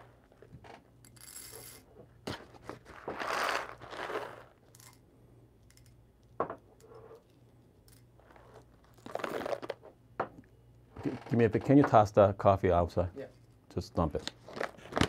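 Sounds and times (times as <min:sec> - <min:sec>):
coffee beans rustling: 0:02.6 - 0:05.0.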